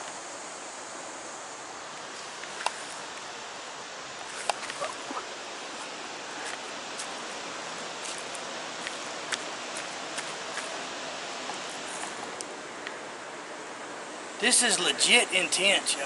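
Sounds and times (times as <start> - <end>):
steady rushing hiss: 0.0 - 16.0
footsteps crunching on dirt trail: 4.2 - 12.4.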